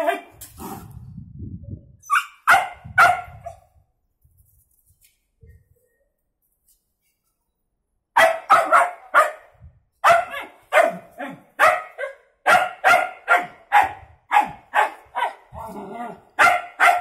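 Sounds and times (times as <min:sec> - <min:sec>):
dog barking high-pitched: 0:02.1 - 0:03.6, 0:08.2 - 0:15.6, 0:16.4 - 0:17.0.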